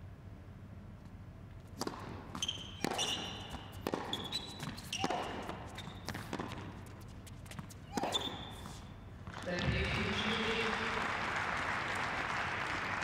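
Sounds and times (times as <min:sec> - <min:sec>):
racket striking tennis ball: 0:01.6 - 0:09.0
ball bouncing: 0:01.8 - 0:10.3
shoe squeaks on court: 0:02.2 - 0:09.0.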